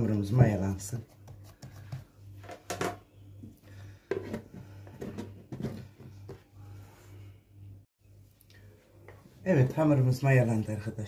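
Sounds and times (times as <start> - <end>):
steady low hum: 0.0 - 11.0
bowls knocking and scraping: 4.0 - 6.5.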